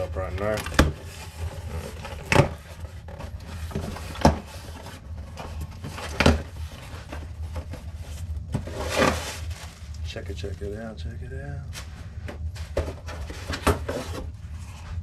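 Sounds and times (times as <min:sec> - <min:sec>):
cardboard scuffing and rustling: 0:00.4 - 0:09.8.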